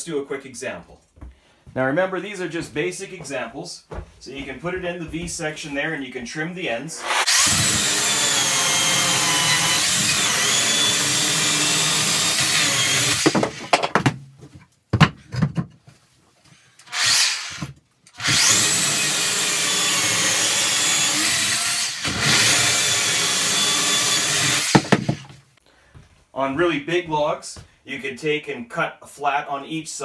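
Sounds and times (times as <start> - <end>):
electric chainsaw cutting log: 7.0 - 13.8, 16.8 - 25.3.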